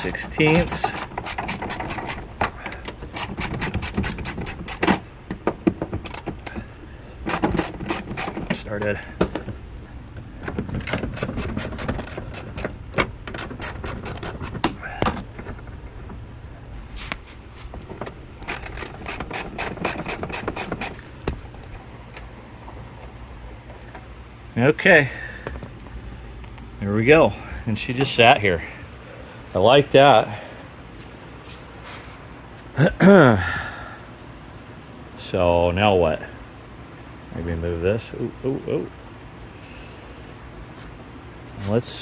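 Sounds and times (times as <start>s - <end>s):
socket ratchet clicking: 0.0s - 6.5s, 7.2s - 8.6s, 10.4s - 14.8s, 18.4s - 21.2s.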